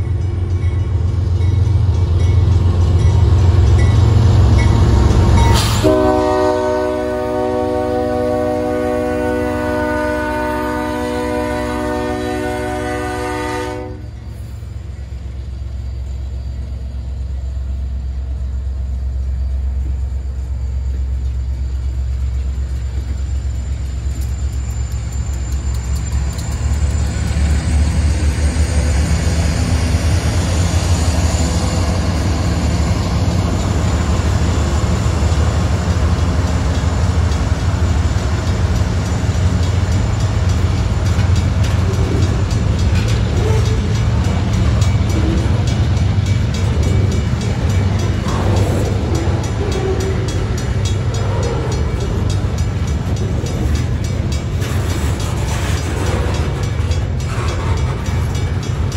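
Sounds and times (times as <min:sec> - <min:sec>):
diesel locomotives rumbling: 0:00.0 - 0:58.9
train wheels rolling over rails: 0:19.3 - 0:58.9.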